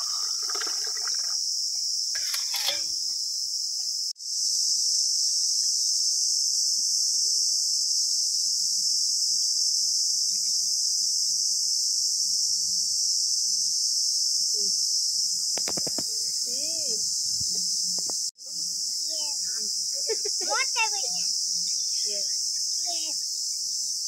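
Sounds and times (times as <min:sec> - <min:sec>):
insects chorus: 0:00.0 - 0:24.0.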